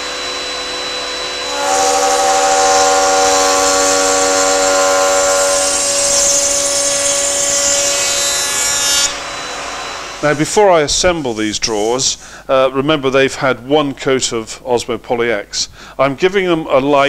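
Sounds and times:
router cutting wood: 0.0s - 10.4s.

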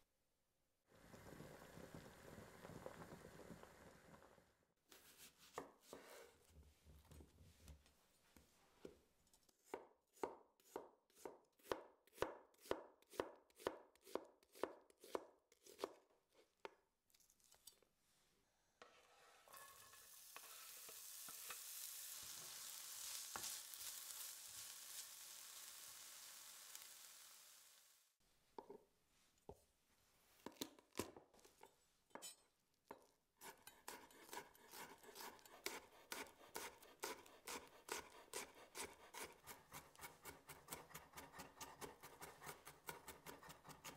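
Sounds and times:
knife chopping on board: 9.6s - 16.0s, 33.4s - 43.9s
wooden spoon stirring in pan: 18.8s - 27.3s
onion sizzling in hot oil: 19.1s - 28.1s.

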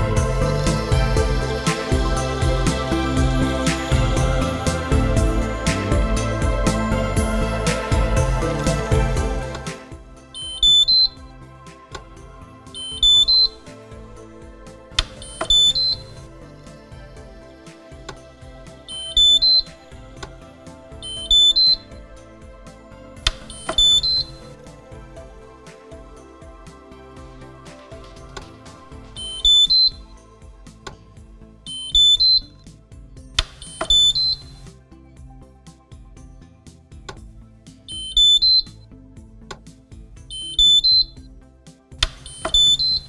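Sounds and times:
soft background music: 0.0s - 43.0s
rising three-note electronic beep: 10.4s - 11.3s, 12.8s - 13.6s, 15.1s - 16.3s, 18.8s - 20.0s, 21.0s - 22.0s, 23.3s - 24.6s, 29.2s - 30.1s, 31.7s - 32.6s, 33.6s - 34.6s, 37.9s - 38.8s, 40.3s - 41.2s, 42.2s - 43.0s
sharp click: 33.4s - 34.5s, 42.0s - 43.0s.

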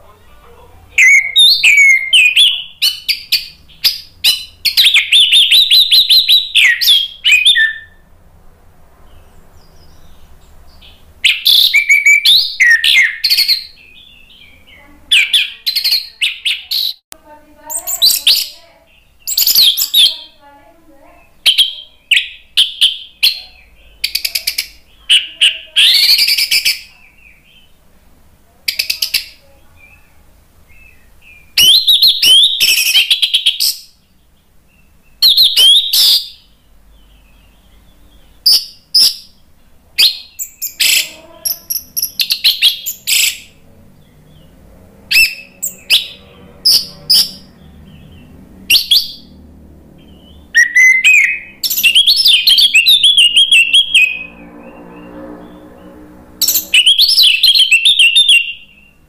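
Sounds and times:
thrush singing whistled phrases: 1.0s - 8.1s, 10.8s - 17.0s, 17.7s - 20.4s, 21.3s - 23.4s, 24.0s - 27.7s, 30.7s - 33.9s, 35.2s - 36.5s, 40.0s - 43.6s, 45.1s - 47.6s, 48.7s - 49.4s, 50.1s - 55.4s, 56.4s - 59.0s.

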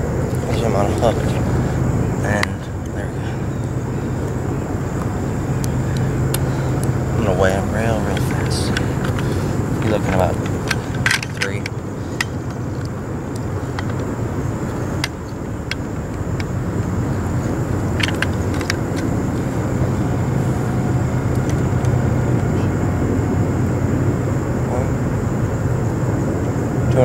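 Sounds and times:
distant engine hum: 0.0s - 27.0s.

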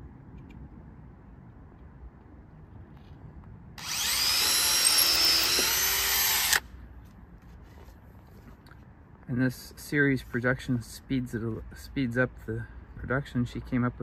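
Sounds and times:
cordless drill whining: 3.8s - 6.6s.

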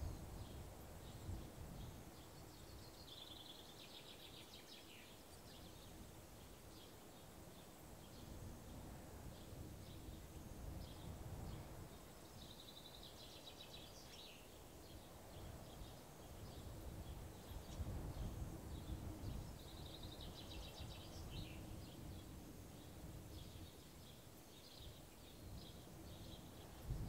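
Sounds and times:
low wind rumble: 0.0s - 3.2s, 13.7s - 24.1s, 24.8s - 27.0s
small birds chirping: 0.0s - 27.0s.

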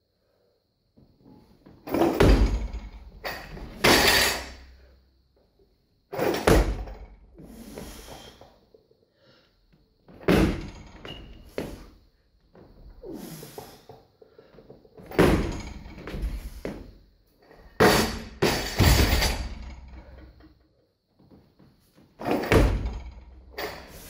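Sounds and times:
barbell thudding on platform: 1.9s - 4.6s, 6.3s - 7.1s, 10.2s - 11.1s, 15.1s - 16.8s, 17.8s - 20.0s.

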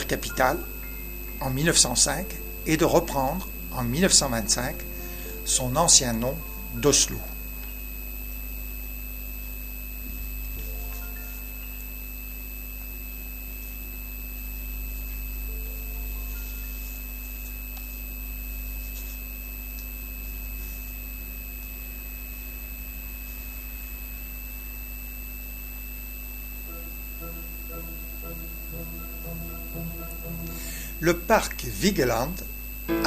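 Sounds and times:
high electronic whine: 0.0s - 33.0s
low hum: 25.8s - 31.7s.

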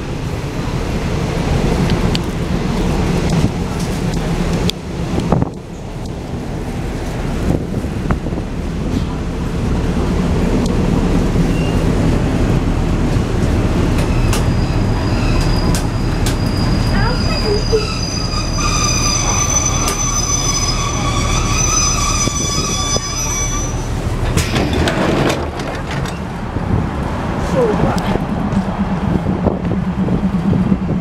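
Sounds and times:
train carriage rumbling on track: 0.0s - 31.0s
brakes and wheels squealing: 11.4s - 12.0s, 13.8s - 26.5s.

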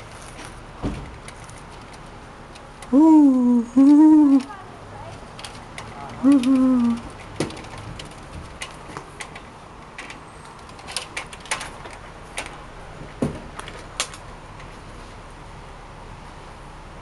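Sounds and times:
clicks and knocks at glass door: 5.4s - 14.2s.

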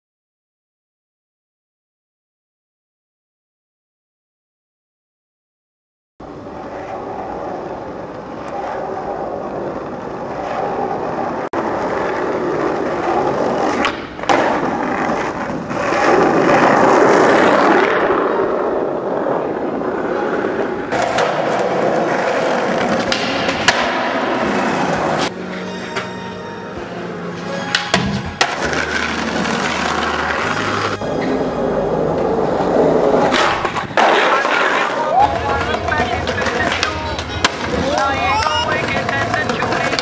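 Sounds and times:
skateboard wheels rolling on asphalt: 6.2s - 26.2s, 27.4s - 40.0s
skateboard popping and landing: 8.1s - 25.3s, 27.7s - 31.4s, 32.1s - 40.0s.

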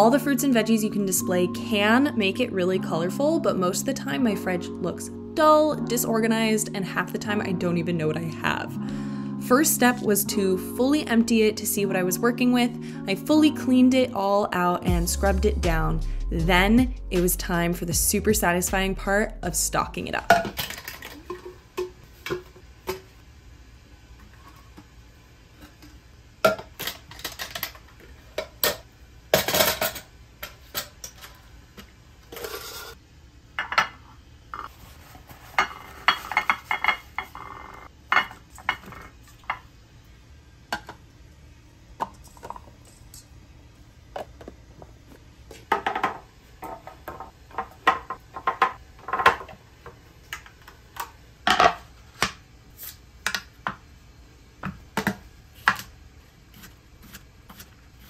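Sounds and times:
plastic containers clicking and rattling: 26.6s - 27.9s.

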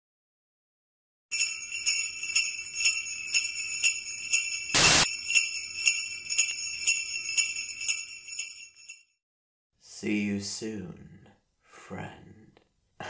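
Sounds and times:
sleigh bells jingling: 1.3s - 9.2s
short loud hiss: 4.8s - 5.1s.

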